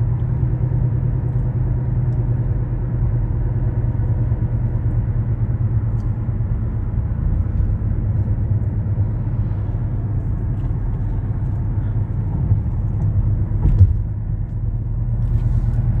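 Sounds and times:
car interior road rumble: 0.0 - 16.0
brief thump: 13.6 - 14.1.

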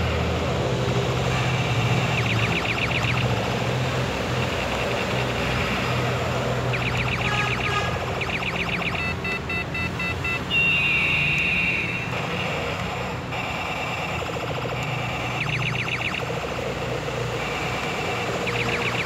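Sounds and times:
electronic chirping pulses: 1.2 - 19.0
toy motor hum: 1.2 - 19.0
electronic tone falling in pitch: 1.4 - 3.7, 6.7 - 12.6, 13.5 - 16.6
short electronic beeps: 1.4 - 19.0.

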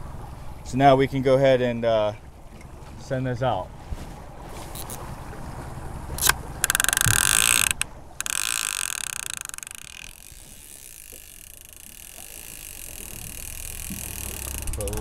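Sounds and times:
fishing reel ratcheting: 4.7 - 5.0, 6.2 - 15.0.

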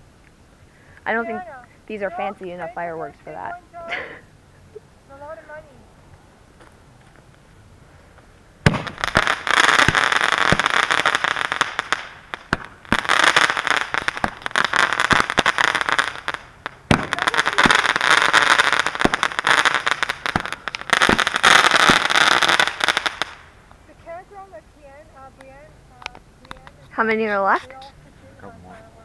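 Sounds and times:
firework crackling and hissing: 7.7 - 29.0
sharp firework cracks: 8.6 - 23.8.

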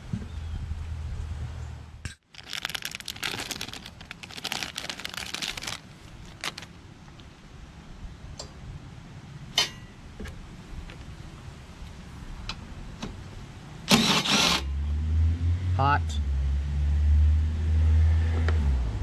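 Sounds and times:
plastic bag crinkling: 2.2 - 6.8.

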